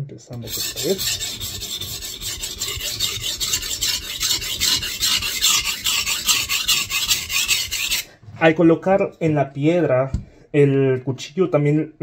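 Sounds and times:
knife scraping on whetstone: 0.4s - 8.1s.

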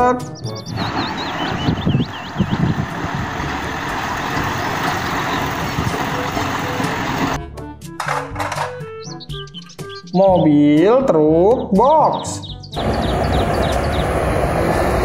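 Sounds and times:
diesel truck engine rumbling: 0.4s - 7.4s, 12.8s - 15.0s
tyre and wind noise: 0.8s - 6.2s.

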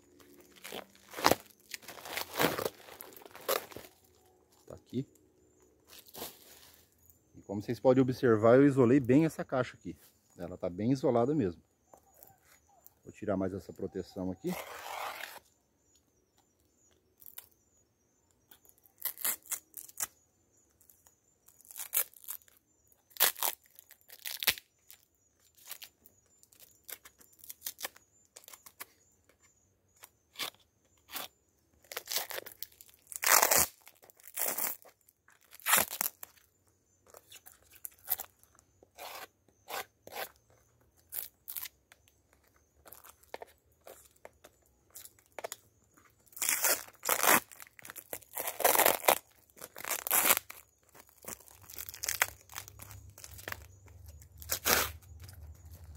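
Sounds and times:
plastic and foil tearing and crinkling: 0.1s - 4.4s, 14.5s - 15.4s, 18.8s - 20.1s, 21.4s - 25.9s, 30.3s - 36.4s, 46.2s - 55.9s.

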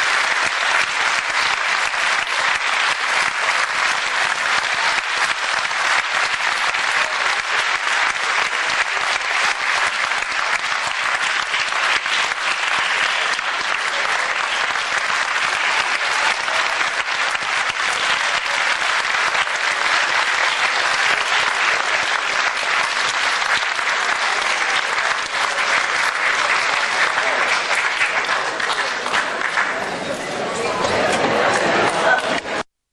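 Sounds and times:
audience applauding: 0.0s - 30.0s, 30.6s - 32.7s.

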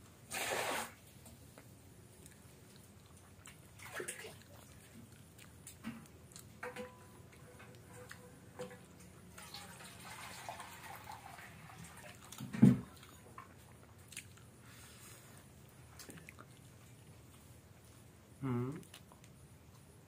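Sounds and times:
thump: 12.4s - 12.8s.

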